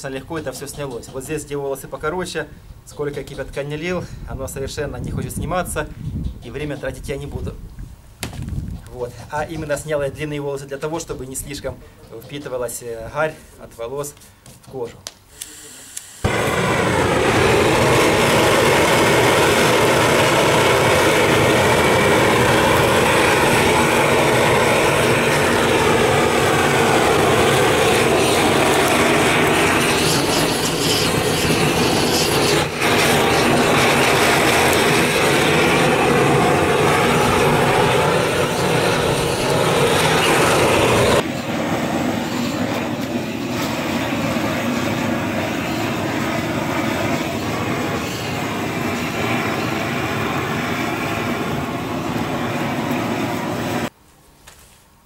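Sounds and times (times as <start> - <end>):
gas torch flame burning: 14.6 - 41.5.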